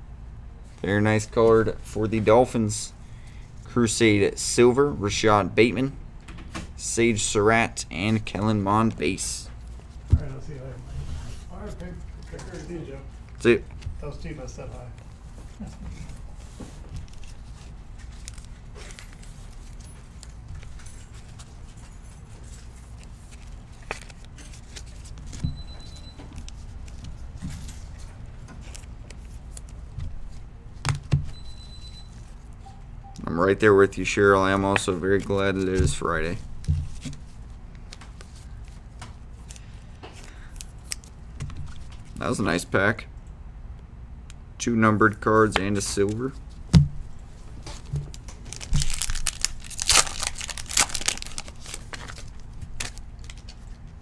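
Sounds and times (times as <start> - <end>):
low steady hum: 0.0 - 54.0
foil wrapper crinkling and tearing: 47.9 - 53.8.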